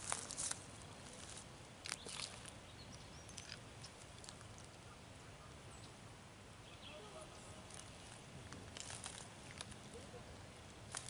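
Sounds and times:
faint bird chirps: 6.6s - 7.7s.

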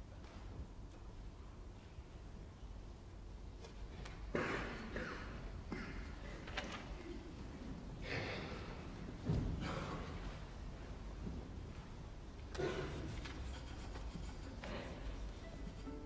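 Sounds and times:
audience rustling: 2.9s - 16.0s
audience coughing: 4.3s - 7.3s, 8.0s - 10.5s, 12.4s - 16.0s.

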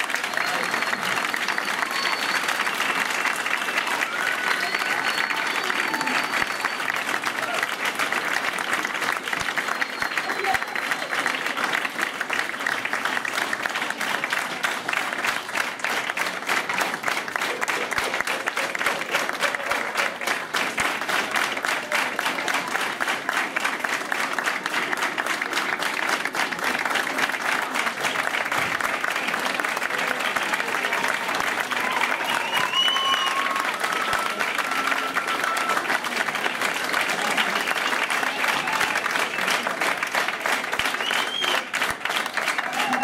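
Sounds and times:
audience applauding: 0.0s - 43.0s.

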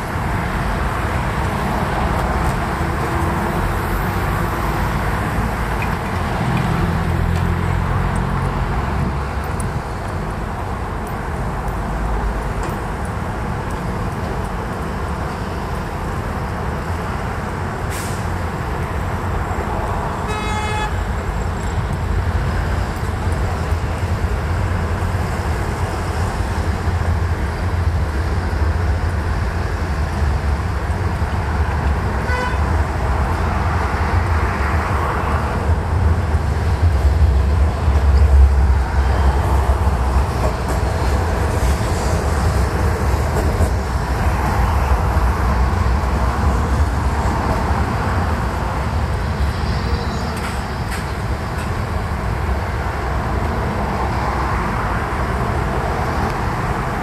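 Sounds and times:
traffic rumble: 0.0s - 57.0s
car horn toot: 20.3s - 21.0s, 32.2s - 32.6s.

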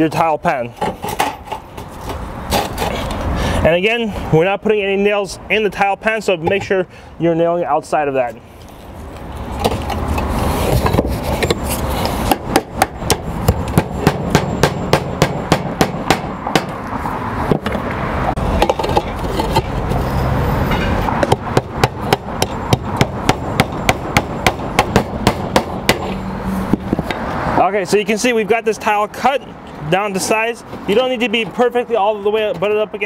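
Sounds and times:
steady background noise: 0.0s - 33.0s
hammer striking roof tile: 12.3s - 16.8s, 21.2s - 26.1s.

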